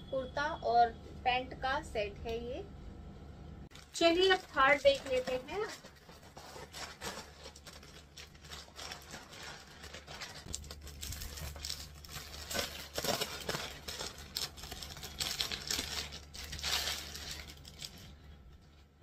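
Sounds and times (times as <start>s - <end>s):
mailer bag tearing: 3.7s - 18.2s
plastic packaging rustling: 3.7s - 19.0s.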